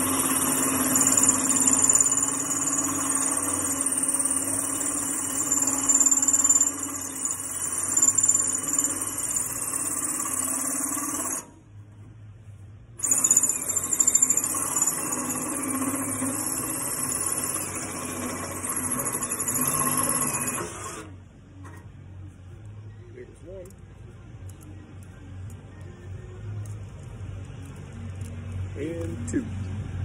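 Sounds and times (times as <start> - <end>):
drill cutting metal squealing: 0.0 - 11.5, 13.0 - 21.1.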